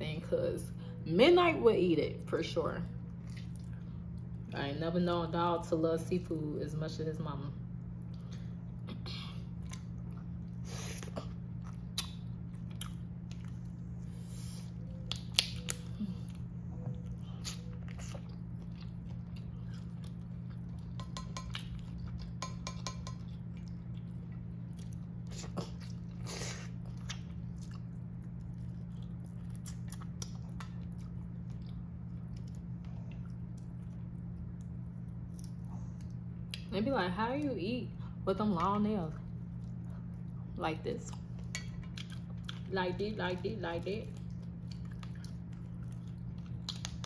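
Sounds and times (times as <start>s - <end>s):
steady low hum: 0.0s - 47.0s
person chewing: 8.0s - 36.7s, 41.1s - 42.7s, 44.2s - 47.0s.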